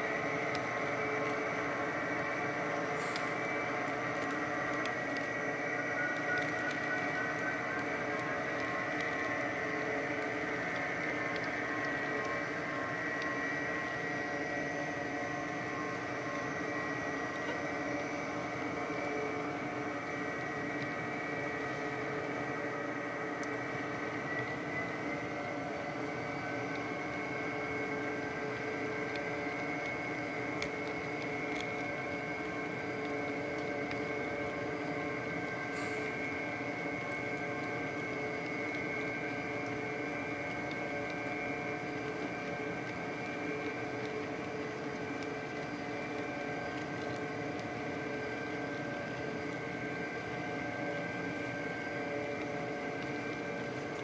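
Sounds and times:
high-pitched whine: 0.0 - 54.0.

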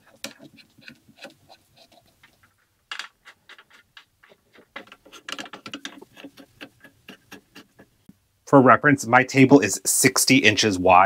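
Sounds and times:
frame parts clicking and tapping: 2.2 - 7.9.

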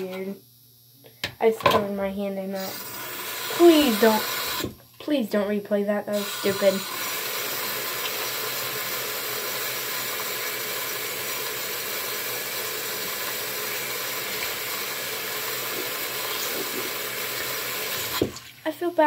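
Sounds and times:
tap water running into sink: 2.6 - 4.8, 6.2 - 18.8.

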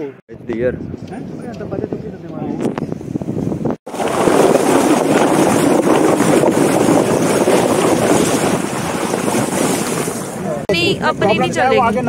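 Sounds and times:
wind buffeting microphone: 0.3 - 12.0
water splashing against vehicle: 3.9 - 10.7.

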